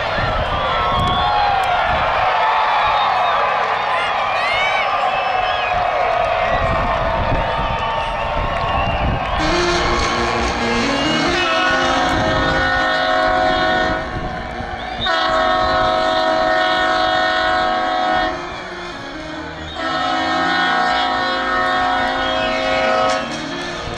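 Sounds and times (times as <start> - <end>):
crowd noise: 0.0 - 23.9
train horn blasts: 9.2 - 23.9.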